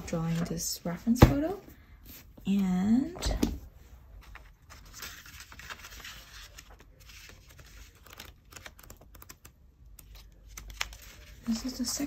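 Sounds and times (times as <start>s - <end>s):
sketchbook pages turning: 4.2s - 12.0s.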